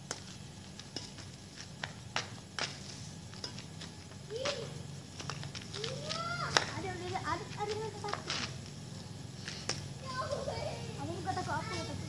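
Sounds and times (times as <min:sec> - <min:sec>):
flip-flops slapping on pavement: 0:00.1 - 0:08.8.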